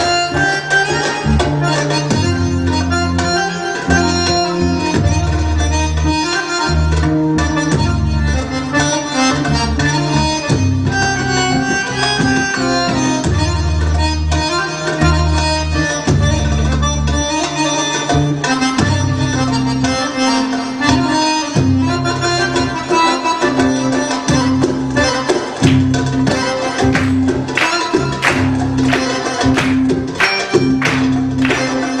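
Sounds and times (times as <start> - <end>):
steady bass: 0.0 - 22.8, 23.6 - 32.0
accordion melody: 0.0 - 32.0
hand drum beats: 23.5 - 32.0.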